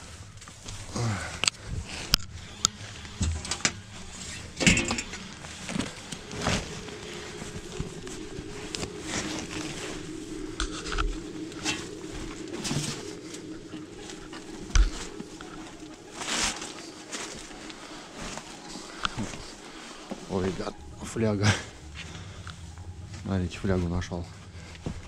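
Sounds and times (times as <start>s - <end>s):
fabric and plastic bags rustling: 0.0s - 25.0s
pigeon cooing: 4.4s - 22.8s.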